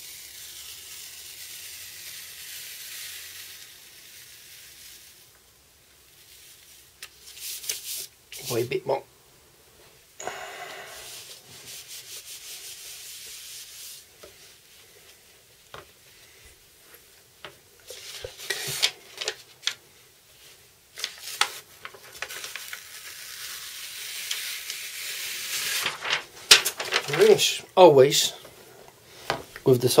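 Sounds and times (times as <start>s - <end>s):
transfer paper peeled off: 0.0s - 5.3s, 6.1s - 8.7s, 10.3s - 15.2s, 17.9s - 19.8s, 20.4s - 27.6s
hands rubbing over paper: 10.3s - 17.2s, 17.9s - 19.8s, 20.4s - 27.6s.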